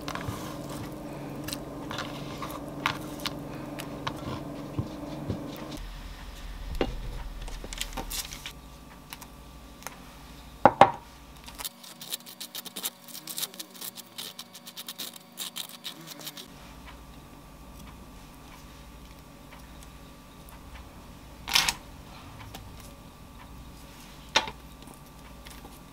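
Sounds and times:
sharp knocks: 0:05.8 - 0:08.5.

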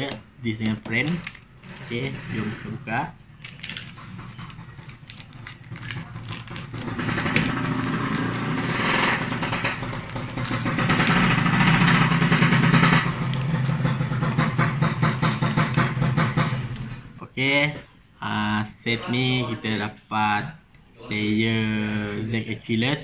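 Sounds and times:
plastic bag crinkling: 0:00.4 - 0:17.1
engine running: 0:03.9 - 0:17.2.

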